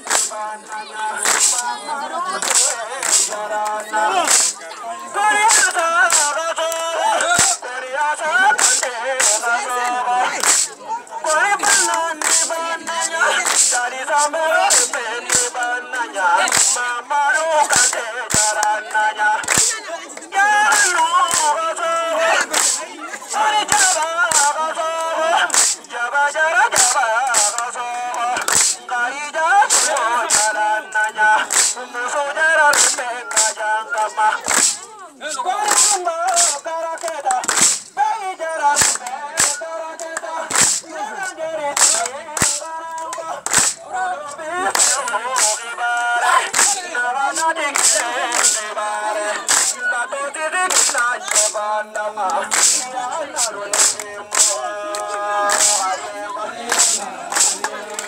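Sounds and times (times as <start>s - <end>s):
sharp percussive cracks: 0.0s - 0.4s, 1.2s - 1.7s, 2.4s - 3.4s, 4.2s - 4.6s, 5.4s - 7.6s, 8.5s - 9.6s, 10.3s - 12.6s, 13.3s - 15.7s, 16.4s - 16.8s, 17.4s - 18.7s, 19.4s - 19.8s, 20.7s - 21.6s, 22.4s - 24.6s, 25.4s - 25.9s, 26.6s - 28.8s, 29.6s - 30.6s, 31.4s - 31.8s, 32.7s - 33.6s, 34.4s - 34.9s, 35.7s - 37.9s, 38.6s - 43.8s, 44.6s - 48.7s, 49.4s - 49.8s, 50.6s - 51.6s, 52.4s - 56.0s, 56.6s - 57.8s
voices singing a dance song: 0.0s - 58.0s.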